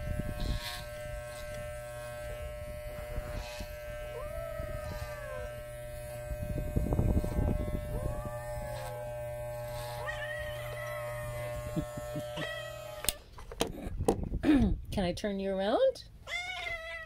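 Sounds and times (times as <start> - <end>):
electric clippers humming: 0.0 - 13.2
cat meowing: 10.0 - 11.4, 12.4 - 12.9, 16.3 - 17.0.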